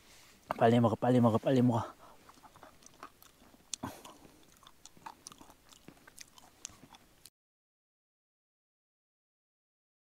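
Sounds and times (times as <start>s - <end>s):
person chewing food: 1.9s - 7.3s.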